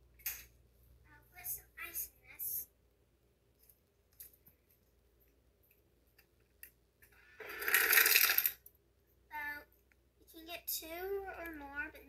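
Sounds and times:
ice cubes clattering into cup: 7.4 - 8.6.

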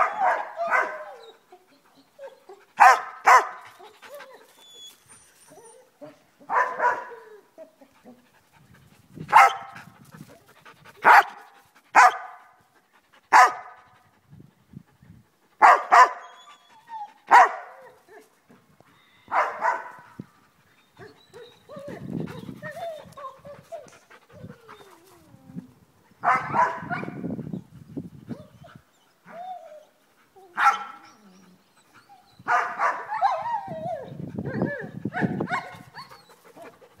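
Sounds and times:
dog barking: 0.0 - 1.2, 2.8 - 3.6, 6.5 - 7.2, 9.3 - 9.7, 11.0 - 11.4, 12.0 - 12.4, 13.3 - 13.8, 15.6 - 16.2, 17.3 - 17.7, 19.3 - 20.0, 26.2 - 27.2, 30.6 - 31.0, 32.5 - 33.2, 35.2 - 35.8.

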